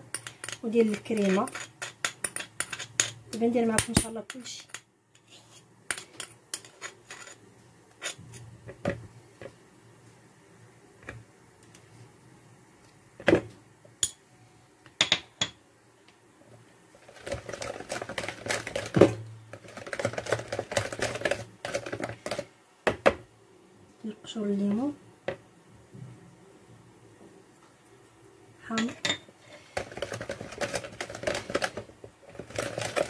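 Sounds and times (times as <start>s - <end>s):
whisk rattling in plastic jug: 17.1s - 19.0s, 19.6s - 22.5s, 29.7s - 33.0s.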